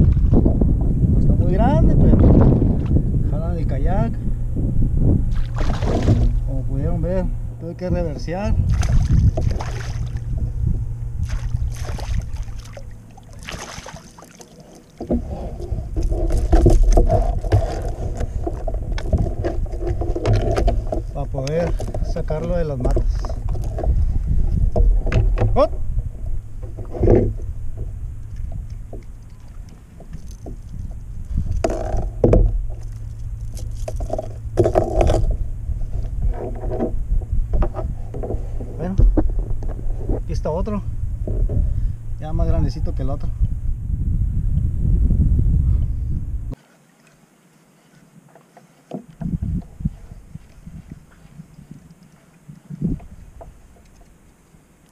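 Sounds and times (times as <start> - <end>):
rushing noise with low rumble: 0.0 - 13.6, 15.1 - 46.6
kayak paddle splashing: 5.3 - 6.5, 8.6 - 10.4, 11.2 - 22.2, 26.2 - 35.4
fish handling rustling and knocking: 8.7 - 10.6, 11.3 - 40.3.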